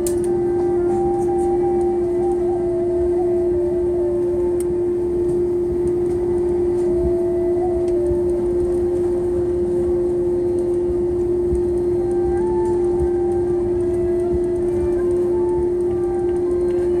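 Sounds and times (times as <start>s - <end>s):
aircraft cabin drone: 0.0s - 17.0s
faint slow music: 0.0s - 17.0s.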